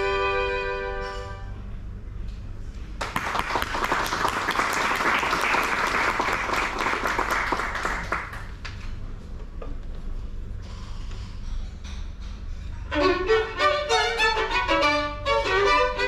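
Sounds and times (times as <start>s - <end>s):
audience applauding: 3.0s - 8.6s.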